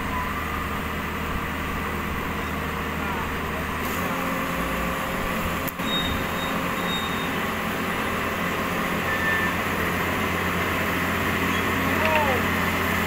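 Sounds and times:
diesel machinery idling: 0.0 - 13.0
high squeaks: 5.8 - 7.4.

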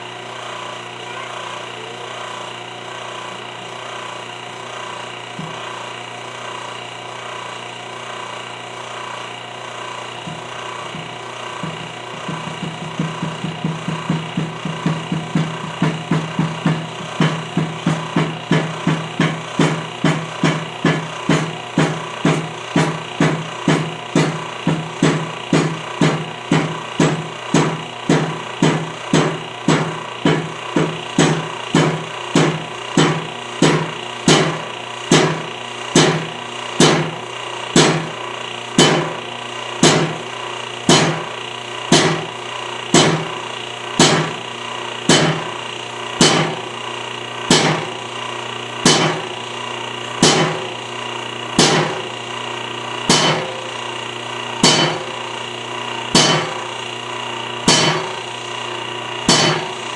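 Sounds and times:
hydraulic press knocking: 3.4 - 6.9, 8.8 - 59.9
steady hum: 9.6 - 38.2, 40.9 - 59.9.

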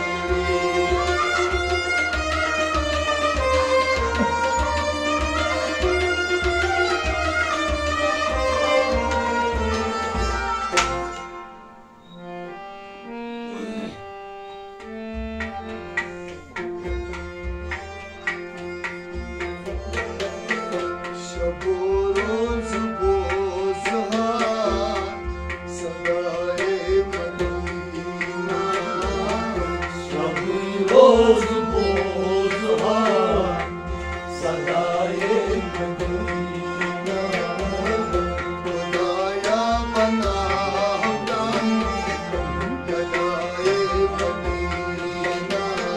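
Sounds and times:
man singing: 0.0 - 1.6, 19.7 - 45.9
bowed and plucked strings: 0.0 - 45.9
harmonium melody: 0.0 - 45.9
goblet drum beat: 0.4 - 11.0, 39.6 - 45.4.

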